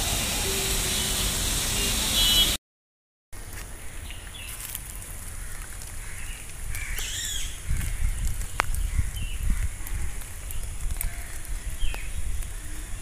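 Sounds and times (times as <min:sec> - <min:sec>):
birds calling: 0:05.3 - 0:13.0.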